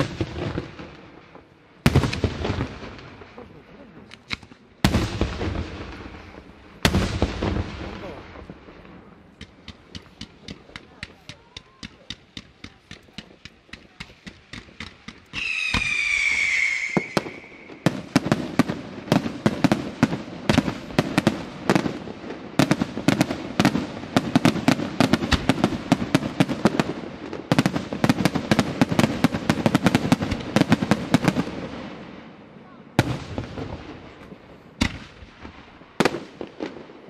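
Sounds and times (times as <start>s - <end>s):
small firework pops: 4.0s - 5.5s, 9.3s - 17.9s, 33.0s - 36.9s
firework shells bursting: 9.3s - 19.7s
firework whistle: 15.3s - 18.1s.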